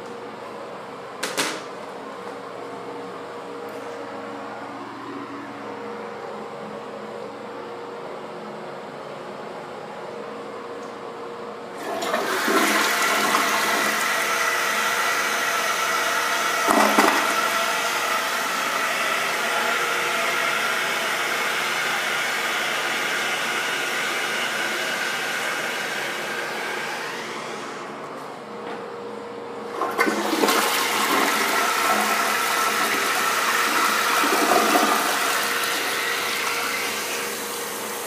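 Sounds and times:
toilet flushing: 11.8s - 27.9s, 29.7s - 38.0s.

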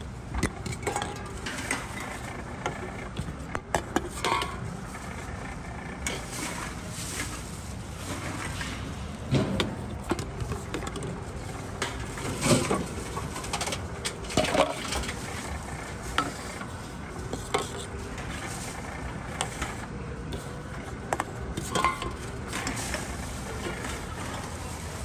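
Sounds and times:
low machine hum: 0.0s - 25.0s
metal cans clinking: 11.8s - 15.2s, 21.2s - 22.9s.

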